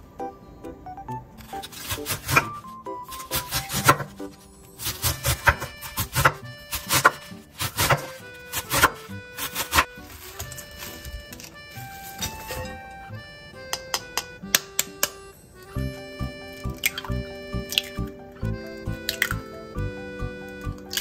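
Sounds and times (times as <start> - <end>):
soft background music: 0.0 - 21.0
knife chopping cabbage on board: 1.6 - 4.2, 4.8 - 10.5.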